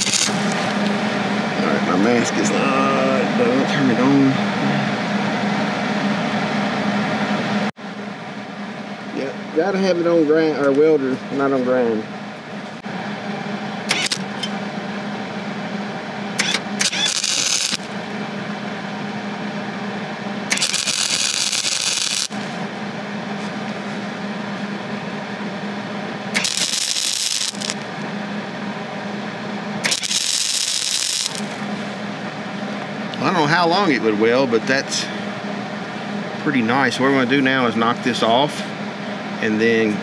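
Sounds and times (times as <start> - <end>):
welding arc crackling and sizzling: 0.0 - 1.1, 13.9 - 14.5, 16.4 - 18.0, 20.5 - 22.6, 26.3 - 28.0, 29.8 - 31.9
electrical hum: 0.0 - 40.0.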